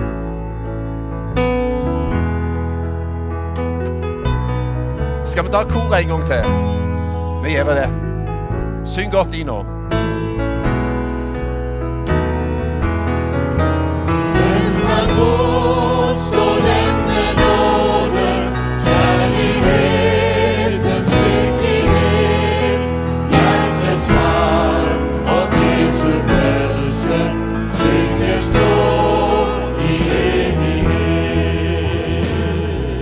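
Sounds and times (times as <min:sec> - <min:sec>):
choir singing with band: 0:14.2 - 0:33.0.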